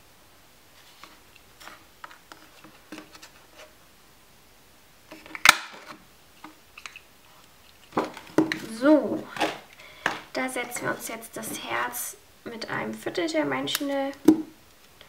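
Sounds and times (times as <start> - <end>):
paper rustling: 0.7 - 3.8
paper punch snapping: 5.4 - 5.8.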